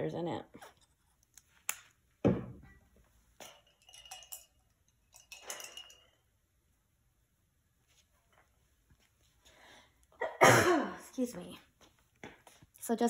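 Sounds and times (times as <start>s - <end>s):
paint supplies clinking and knocking: 3.4s - 6.2s.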